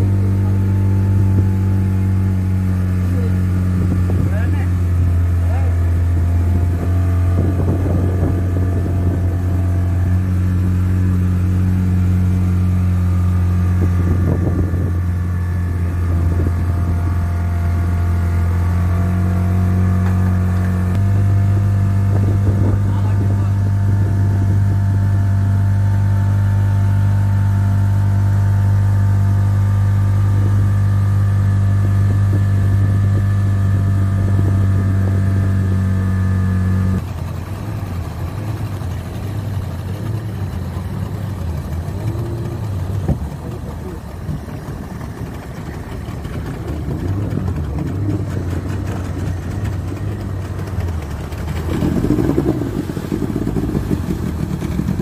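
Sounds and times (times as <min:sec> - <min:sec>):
motorboat engine humming: 0:00.0 - 0:55.0.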